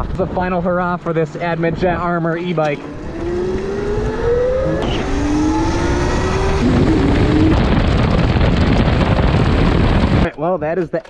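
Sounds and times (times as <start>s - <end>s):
road noise: 0.0s - 10.3s
wind noise on microphone: 0.0s - 10.3s
electric motor whine: 2.8s - 8.4s.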